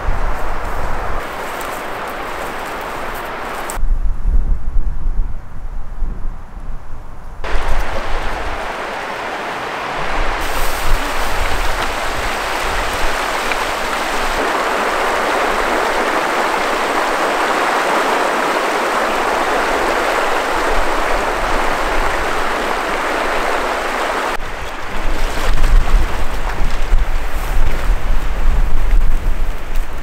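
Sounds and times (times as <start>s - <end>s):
wind buffeting microphone: 0.0s - 30.0s
river rushing over rocks: 7.5s - 24.4s.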